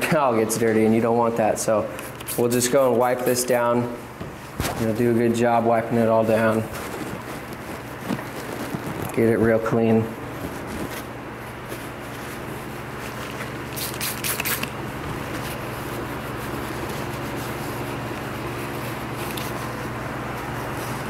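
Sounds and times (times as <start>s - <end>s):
paper towel rubbing on metal: 0.0s - 21.0s
steady low hum: 0.0s - 21.0s
sharp rustling scrapes: 4.4s - 21.0s.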